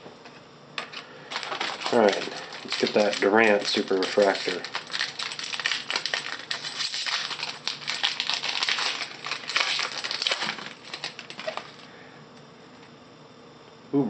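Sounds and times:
foil wrapper crinkling: 0.8s - 11.9s.

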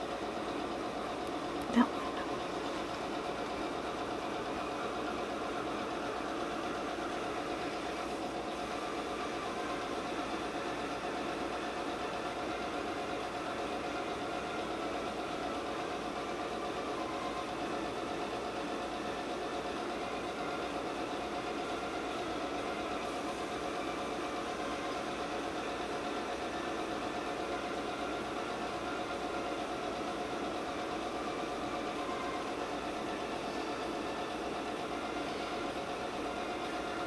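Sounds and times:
steady machine hum: 0.0s - 37.0s.

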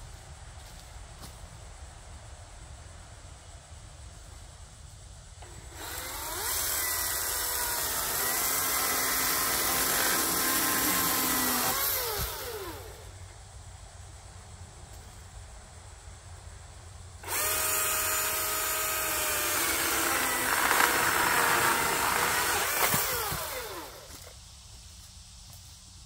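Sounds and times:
chainsaw sawing into wood: 5.4s - 13.1s, 17.2s - 24.3s
electric chainsaw whining: 5.4s - 13.1s, 17.2s - 24.3s.

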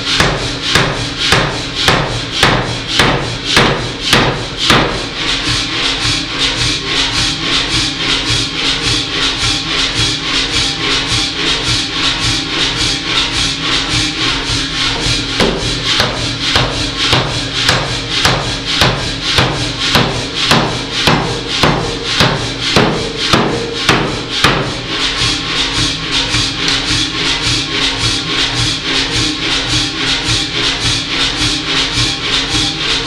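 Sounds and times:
power hammer striking metal: 0.0s - 8.3s, 14.8s - 27.9s
music with shaker rhythm: 0.0s - 33.0s.

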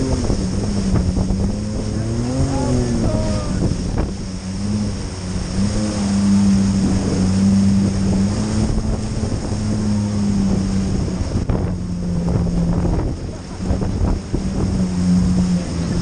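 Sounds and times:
jet ski engine humming: 0.0s - 16.0s
wind buffeting microphone: 0.0s - 16.0s.

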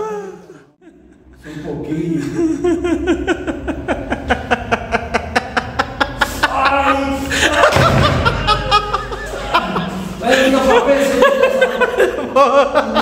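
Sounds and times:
person laughing hard: 2.2s - 13.0s
low rumble: 2.3s - 10.2s.

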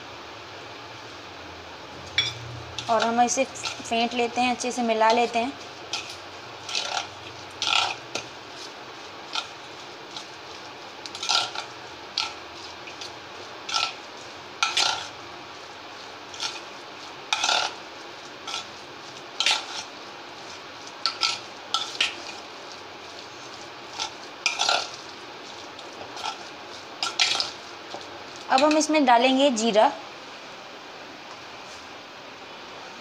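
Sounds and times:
batter scraping in metal bowl: 2.8s - 15.2s, 16.0s - 27.7s.

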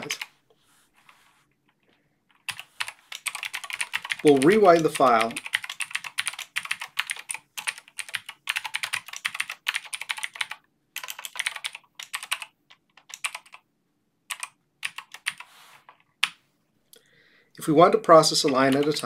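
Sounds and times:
typing on computer keyboard: 2.3s - 13.6s, 14.3s - 16.4s.

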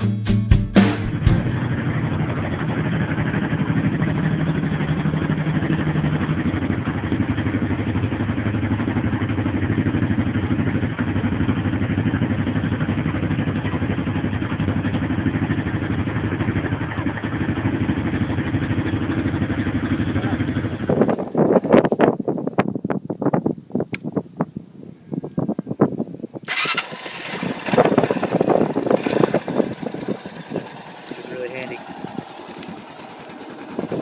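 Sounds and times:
motorcycle engine idling: 1.1s - 22.1s, 26.5s - 34.0s.

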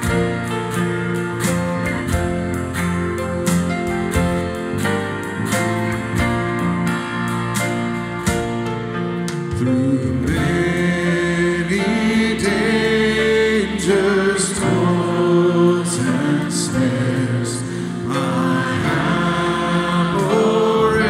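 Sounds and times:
acoustic guitar: 0.0s - 21.0s
choir singing: 10.2s - 21.0s.

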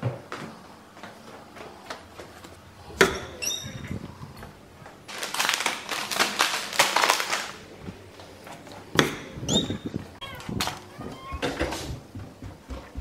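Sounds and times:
paper bag crinkling: 5.0s - 8.7s.

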